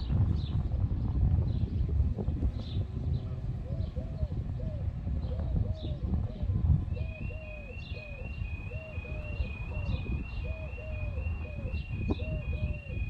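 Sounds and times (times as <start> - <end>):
pigeon cooing: 3.6 - 13.0.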